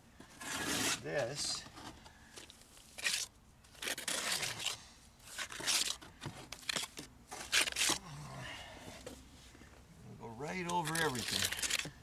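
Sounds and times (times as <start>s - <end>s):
trowel scraping wet plaster: 0.4s - 1.0s, 3.0s - 6.0s.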